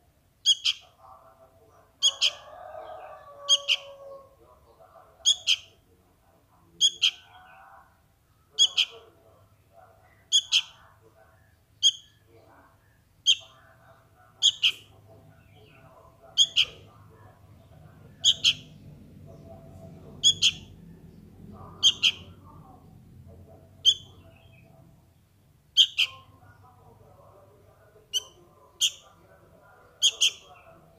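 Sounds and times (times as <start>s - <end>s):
fledgling bird begging calls: 0.4s - 0.9s, 2.0s - 4.3s, 5.2s - 5.7s, 6.8s - 7.6s, 8.5s - 9.1s, 10.2s - 10.8s, 11.8s - 12.3s, 13.2s - 13.6s, 14.4s - 16.9s, 18.1s - 18.8s, 20.2s - 20.8s, 21.8s - 22.4s, 23.8s - 24.6s, 25.7s - 26.3s, 28.1s - 29.1s, 29.9s - 30.7s.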